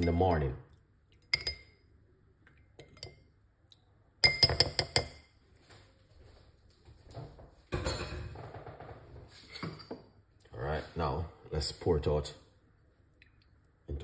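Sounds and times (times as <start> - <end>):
spoon tapping glass bowl: 1.3 - 1.8, 4.2 - 5.3.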